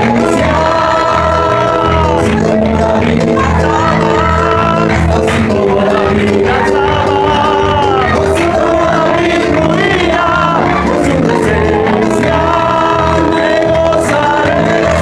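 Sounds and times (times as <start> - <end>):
congregation singing: 0.0 - 15.0.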